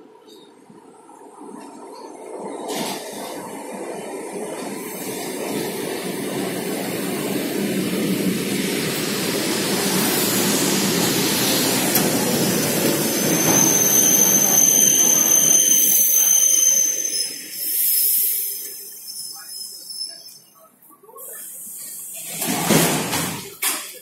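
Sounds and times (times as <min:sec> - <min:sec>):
train wheels on rails: 0:00.0 - 0:19.5, 0:21.3 - 0:24.0
high brake squeal: 0:11.4 - 0:20.7.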